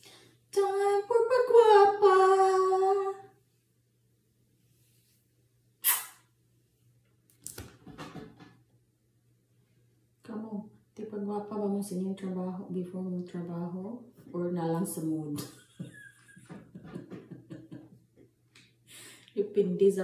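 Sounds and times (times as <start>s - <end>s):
short hiss: 5.8s - 6.3s
handling noise with light knocks: 7.4s - 8.6s.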